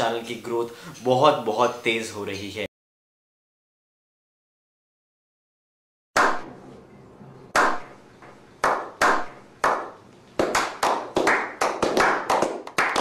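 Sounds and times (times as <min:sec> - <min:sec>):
men clapping: 0:08.6 - 0:13.0.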